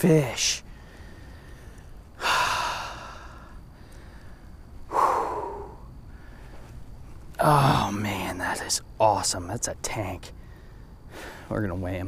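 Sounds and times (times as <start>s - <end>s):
man breathing out hard: 0.7s - 6.6s.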